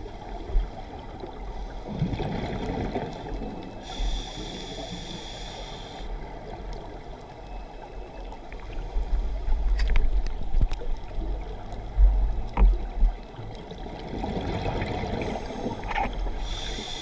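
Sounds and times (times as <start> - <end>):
exhaled bubbles rumbling: 0.0 - 3.8, 9.5 - 16.4
regulator hissing inhale: 3.8 - 6.1, 15.2 - 17.0
underwater clicks: 9.7 - 10.9.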